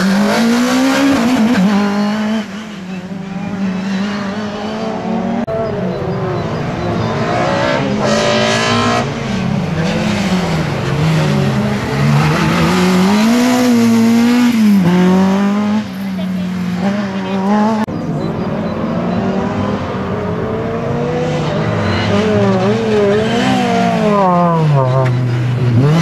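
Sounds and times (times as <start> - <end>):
car engine revving hard: 3.4 - 15.9.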